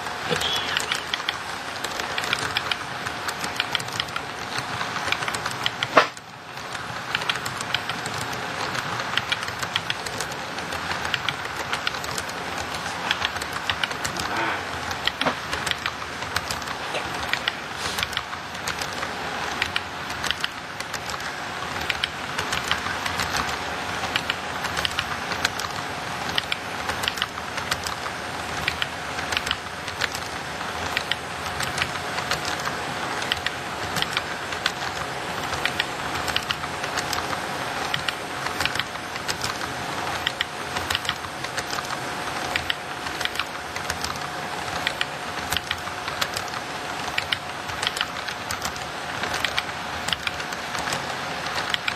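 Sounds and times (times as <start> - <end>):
model train wheels clicking: 0.0 - 51.9
steady rolling noise: 0.0 - 51.9
thin steady whine: 0.0 - 51.9.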